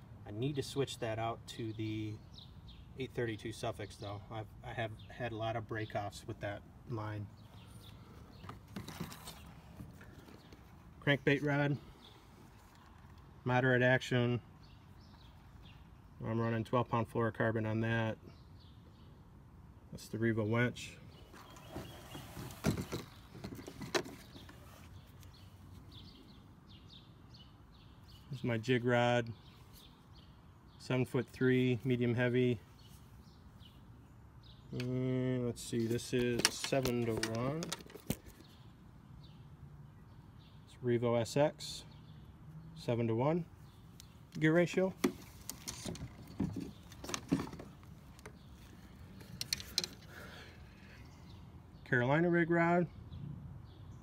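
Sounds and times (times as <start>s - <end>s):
faint outdoor background: 0.0s - 54.0s
fishing rods rustling: 7.4s - 11.4s, 12.1s - 13.3s, 21.2s - 25.9s, 35.6s - 38.6s, 43.8s - 51.1s
handling clicks and knocks: 21.3s - 24.7s, 35.9s - 38.5s, 44.0s - 50.3s.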